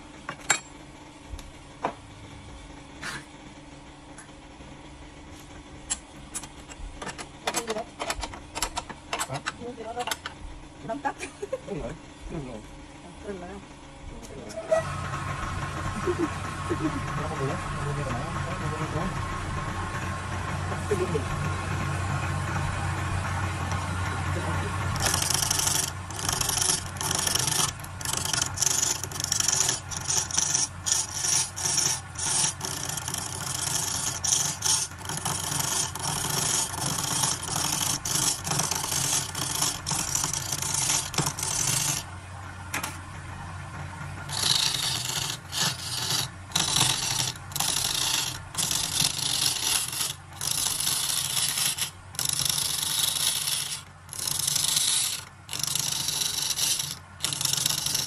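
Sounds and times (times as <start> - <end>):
turning tool scraping wood: 14.4 - 42.1, 44.2 - 58.0
wood lathe motor hum: 14.5 - 58.0.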